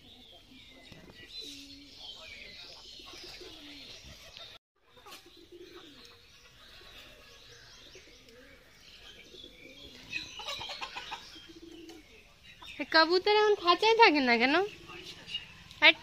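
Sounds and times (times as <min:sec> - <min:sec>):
pigeons cooing: 0:00.0 - 0:12.4
small birds chirping: 0:00.0 - 0:16.0.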